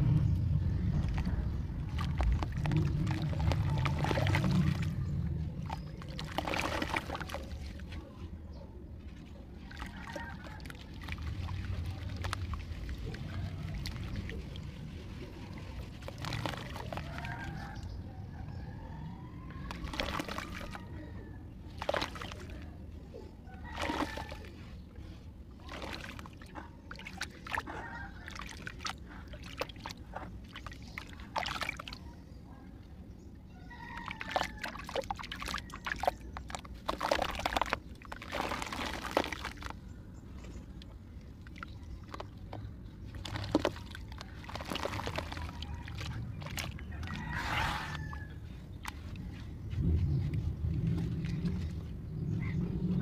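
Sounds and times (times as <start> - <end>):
muddy water sloshing in basin: 0.0 - 53.0
water drips and plops: 0.9 - 7.8, 9.6 - 17.9, 19.5 - 20.9, 21.7 - 22.7, 23.6 - 24.5, 25.6 - 32.1, 33.7 - 49.2.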